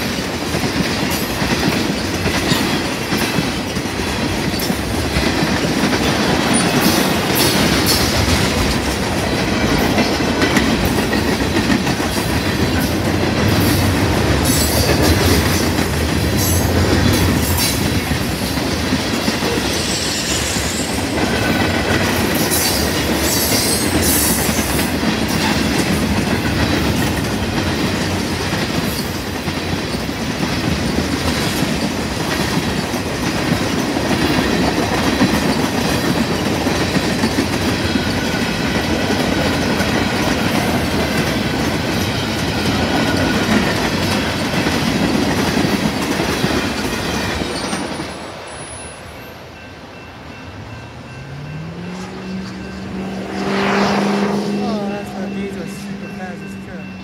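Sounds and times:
wheels clacking over rail joints: 0:00.0 - 0:48.6
freight train rumbling past: 0:00.0 - 0:57.0.

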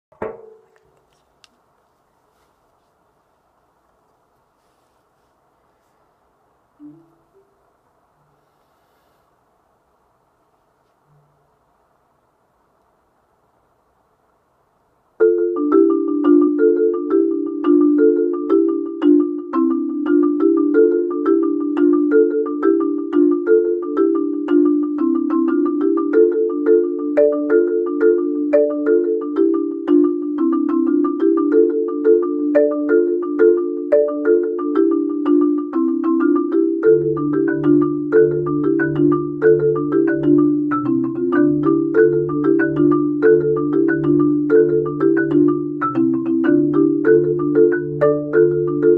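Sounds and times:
marimba notes: 0:06.8 - 0:07.6, 0:15.2 - 0:48.9
low marimba bass notes: 0:15.2 - 0:48.9.

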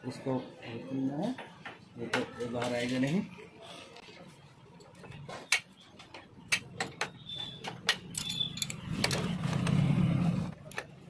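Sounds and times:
metal tools clicking: 0:07.6 - 0:09.2.

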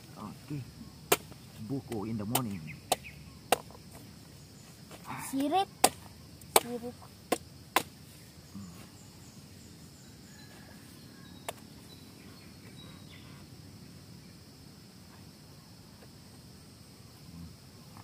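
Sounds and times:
insects humming: 0:00.0 - 0:18.0
machete chopping coconut husk: 0:01.0 - 0:04.0, 0:05.4 - 0:08.0.

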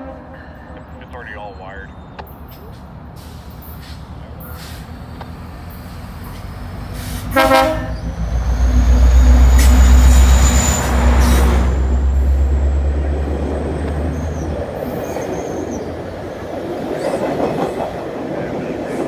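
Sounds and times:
diesel locomotive engine rumble: 0:00.0 - 0:19.0
high wheel squeals: 0:05.7 - 0:12.4, 0:14.0 - 0:16.0.

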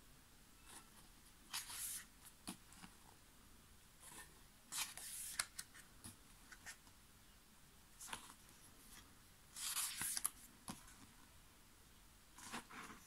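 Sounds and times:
paper pages turning: 0:01.5 - 0:03.0, 0:04.0 - 0:06.8, 0:08.0 - 0:11.1.

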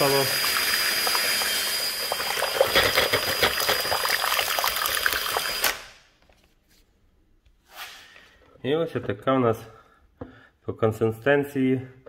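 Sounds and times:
drill motor whine: 0:00.0 - 0:04.2, 0:05.1 - 0:05.8.

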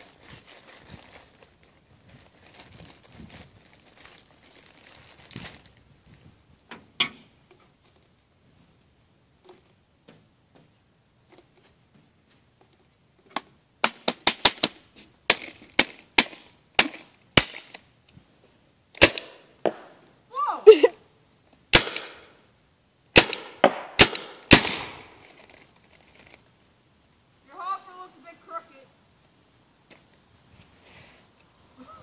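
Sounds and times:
person crying out: 0:20.3 - 0:21.1, 0:31.8 - 0:32.0.

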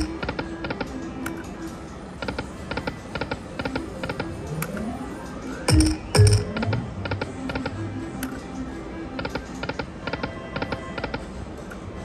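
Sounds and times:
slot machine electronic clicks: 0:00.0 - 0:11.9
slot machine reels thudding: 0:02.9 - 0:07.8.

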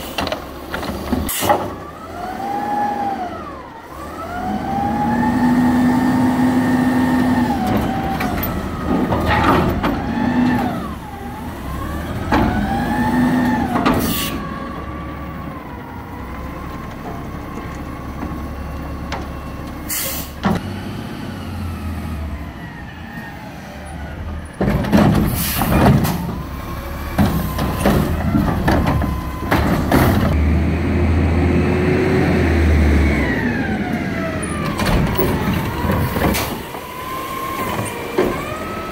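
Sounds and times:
garbage truck engine revving: 0:00.0 - 0:38.9
hydraulics whining: 0:00.0 - 0:38.9
metal bangs and clanks: 0:24.6 - 0:26.4.

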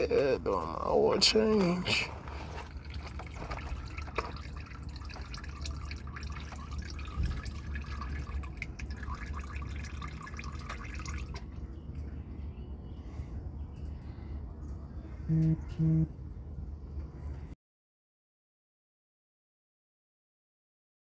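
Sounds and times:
oil trickling into pan: 0:02.4 - 0:11.5
small drips and splashes: 0:02.4 - 0:12.1.

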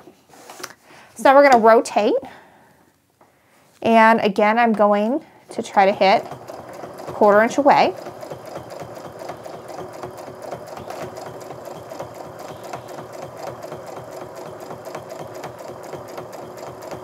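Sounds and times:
sewing machine stitching: 0:05.5 - 0:17.0.

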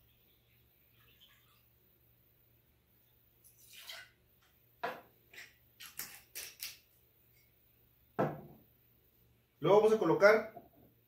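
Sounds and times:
glass bottle knocking on wooden table: 0:08.2 - 0:08.6.

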